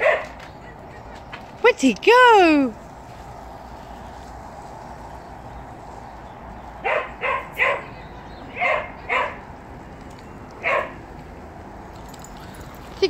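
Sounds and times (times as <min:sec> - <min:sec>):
dog barking: 0:00.0 - 0:00.4, 0:06.8 - 0:09.5, 0:10.6 - 0:11.0.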